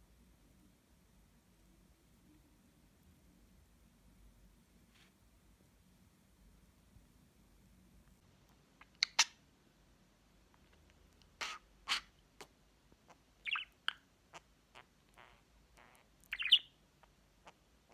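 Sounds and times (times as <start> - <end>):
budgerigar chirps and clicks: 8.8 - 9.4, 10.7 - 17.9.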